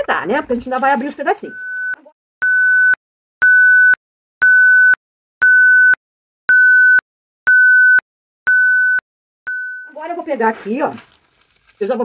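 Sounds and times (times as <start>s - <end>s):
high electronic beeps: 1.5s - 10.0s.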